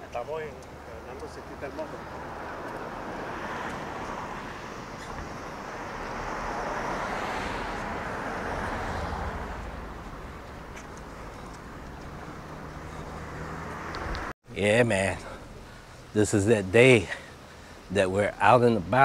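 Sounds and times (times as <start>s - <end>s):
low traffic rumble: 0.0s - 19.0s
vehicle passing by: 0.3s - 14.3s.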